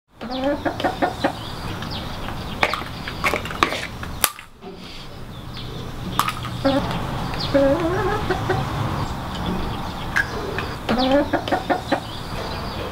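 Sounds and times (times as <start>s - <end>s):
hens clucking: 0.2s - 12.9s.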